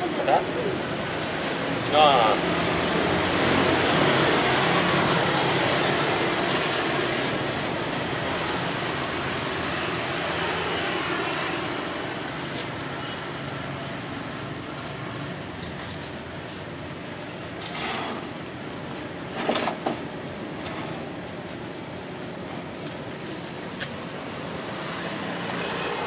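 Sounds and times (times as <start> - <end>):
steady traffic noise: 0.0 - 26.0
small motorcycles passing: 24.5 - 26.0.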